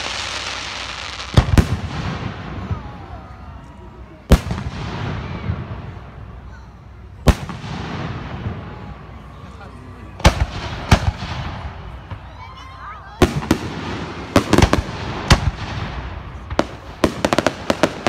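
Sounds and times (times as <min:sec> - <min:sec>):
firework hiss: 0:00.0 - 0:02.4.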